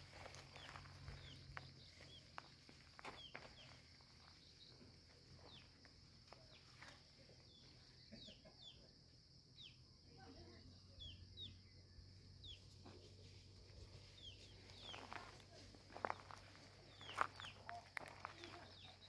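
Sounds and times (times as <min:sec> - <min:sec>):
high insect drone: 0:00.0 - 0:08.1.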